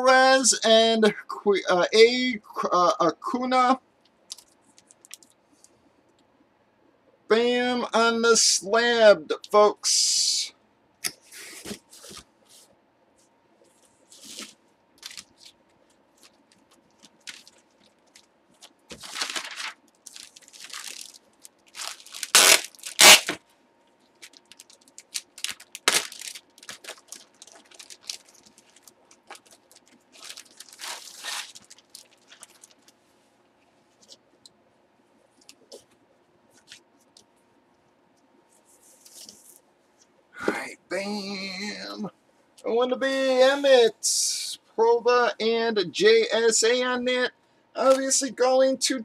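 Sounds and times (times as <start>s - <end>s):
faint steady hum: 0.0s - 49.0s
cardboard tearing: 18.9s - 23.4s, 24.3s - 28.7s, 30.1s - 32.7s.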